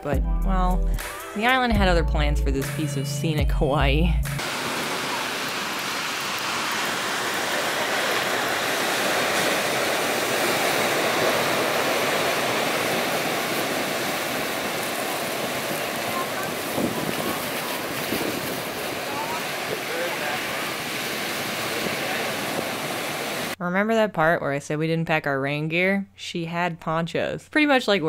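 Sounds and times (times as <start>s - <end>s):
ocean waves on pebble beach: 4.4s - 23.6s.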